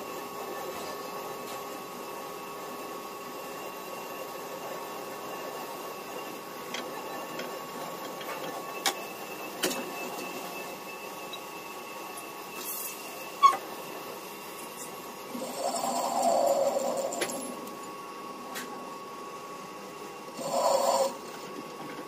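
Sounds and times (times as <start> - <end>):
lathe machining metal: 2.7 - 18.2, 20.2 - 21.3.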